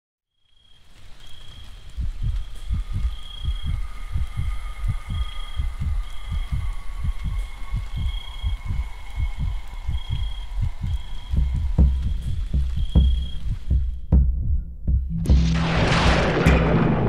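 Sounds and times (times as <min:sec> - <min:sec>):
heartbeat-like thumps: 0:01.9 - 0:17.0.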